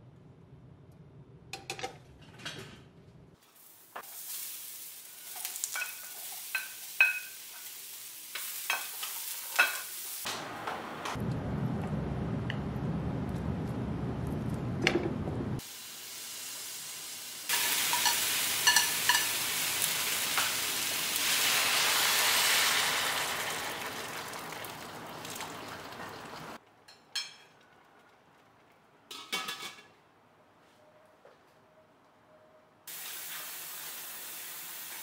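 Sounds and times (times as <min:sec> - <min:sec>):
meat and vegetables sizzling in pan: 0:03.4 - 0:10.3, 0:15.6 - 0:26.6, 0:32.9 - 0:35.0
water poured into hot pan hissing: 0:03.4 - 0:10.3, 0:15.6 - 0:26.6, 0:32.9 - 0:35.0.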